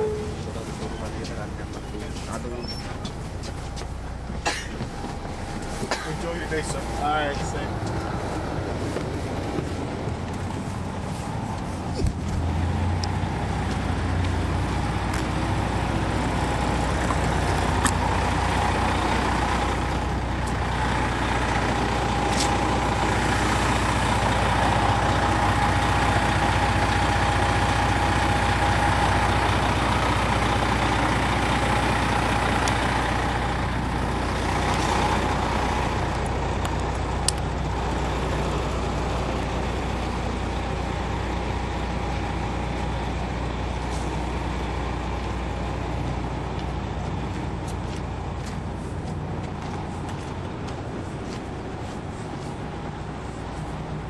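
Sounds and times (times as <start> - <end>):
diesel engine deep rumble: 0.0 - 54.0
engine whine: 0.0 - 54.0.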